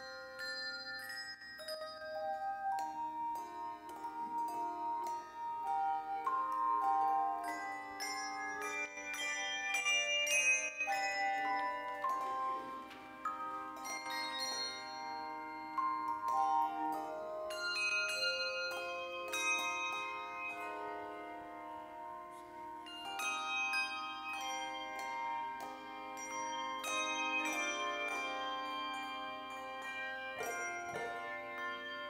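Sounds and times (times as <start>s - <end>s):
handbell choir ringing: 0.0s - 32.0s.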